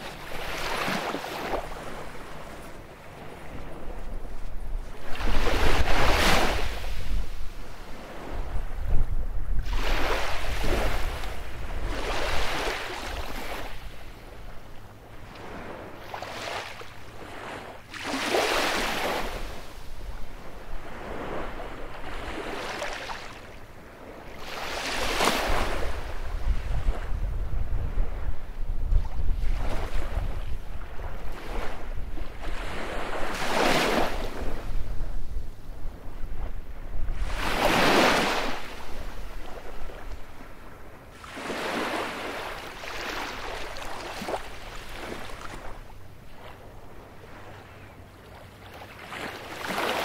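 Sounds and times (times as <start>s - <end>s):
wind rumble on microphone: 0.0s - 17.7s, 18.4s - 22.9s, 23.6s - 41.2s
waves breaking on a beach: 0.0s - 50.0s.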